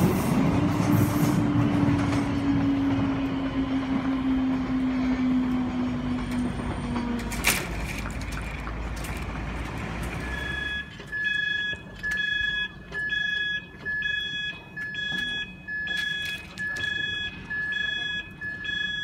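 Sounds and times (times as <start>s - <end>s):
level crossing alarm beeping: 10.2s - 19.0s.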